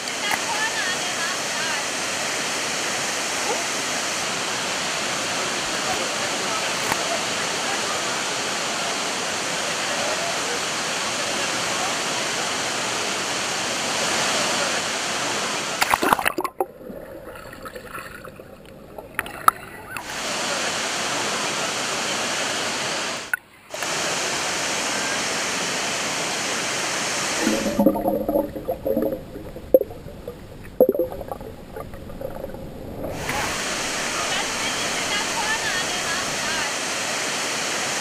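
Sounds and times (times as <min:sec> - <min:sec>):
waterfall rushing: 0:00.0 - 0:15.8, 0:20.0 - 0:38.0
muffled underwater gurgling: 0:27.4 - 0:36.4.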